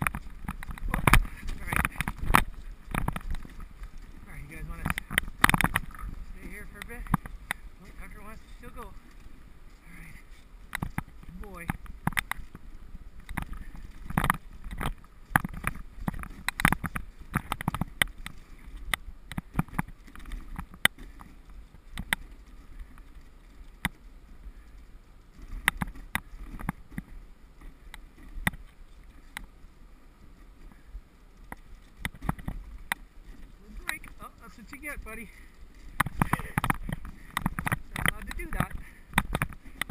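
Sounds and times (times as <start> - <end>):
sled knocking over bumps: 0.0 - 8.3
sled runners rumbling on snow: 0.0 - 39.9.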